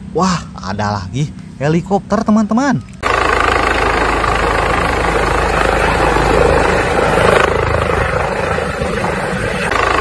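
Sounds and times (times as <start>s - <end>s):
helicopter rotor chop: 3.0s - 10.0s.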